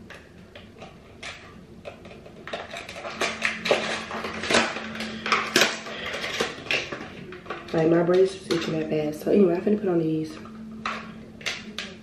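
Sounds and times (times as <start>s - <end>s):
faint steady hum: 0.0s - 12.0s
small hard objects clattering: 1.2s - 9.0s.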